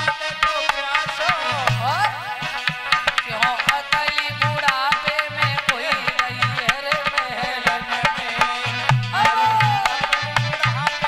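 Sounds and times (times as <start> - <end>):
woman singing devotional song: 0.6 - 11.0
drum steady beat: 0.8 - 7.4, 8.9 - 11.0.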